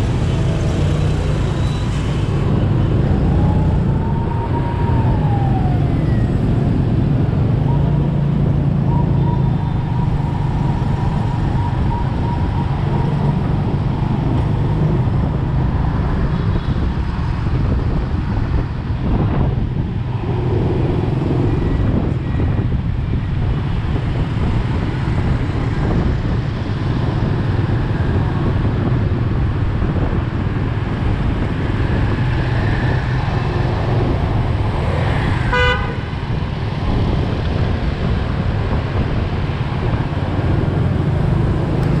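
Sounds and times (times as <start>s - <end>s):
scooter engine and road noise: 0.0s - 42.0s
vehicle horn beep: 35.5s - 36.1s.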